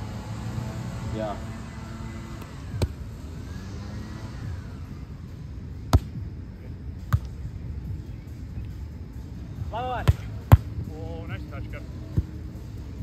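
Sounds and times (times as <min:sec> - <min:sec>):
steady low rumble: 0:00.0 - 0:13.0
volleyball slapped by hand: 0:02.4 - 0:03.0, 0:05.9 - 0:06.2, 0:07.1 - 0:07.4.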